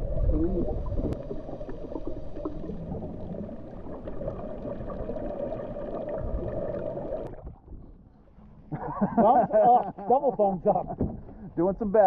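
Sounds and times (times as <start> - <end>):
muffled underwater rumble: 0.0 - 8.9.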